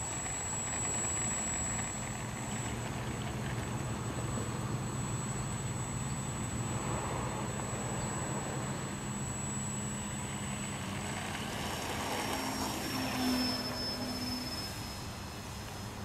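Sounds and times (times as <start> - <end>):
model plane motor whine: 0.0 - 16.0.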